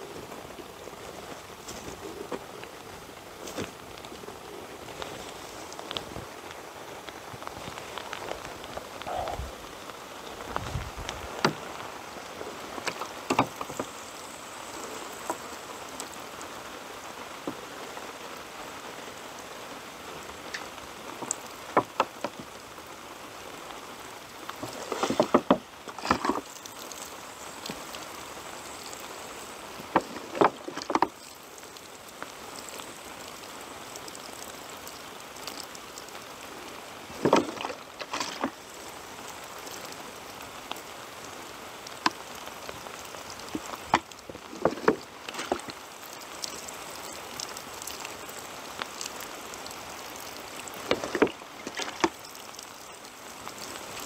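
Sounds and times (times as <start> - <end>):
steady hiss: 0.0 - 54.0
water splashing onto soil: 1.2 - 18.5, 20.2 - 54.0
sharp taps and crackles: 12.8 - 14.3, 41.8 - 52.9.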